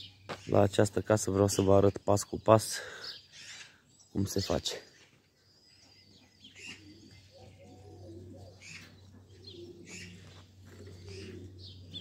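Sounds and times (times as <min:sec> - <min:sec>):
small birds chirping: 0:00.0 - 0:12.0
dove cooing: 0:06.4 - 0:12.0.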